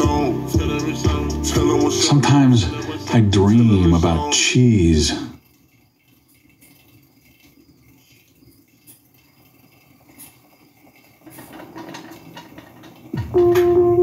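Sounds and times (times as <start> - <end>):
hamster wheels rattling and whirring: 3.3 - 13.4.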